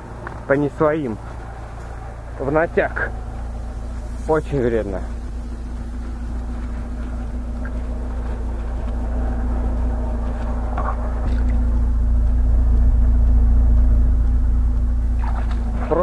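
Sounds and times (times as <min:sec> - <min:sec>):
tyres in mud ruts: 0:00.0 - 0:11.9
car engine running under load: 0:00.0 - 0:16.0.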